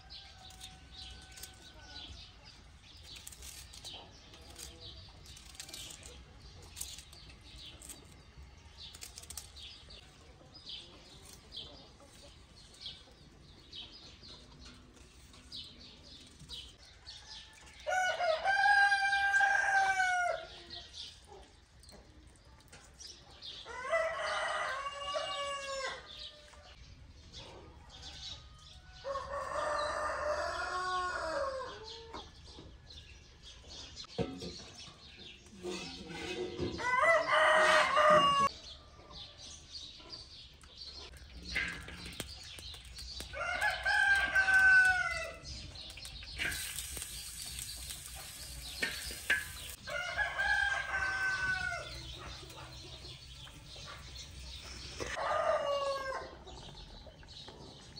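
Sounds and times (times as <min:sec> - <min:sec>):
rooster crowing: 0:36.8 - 0:38.5, 0:49.7 - 0:52.0, 0:55.2 - 0:56.3.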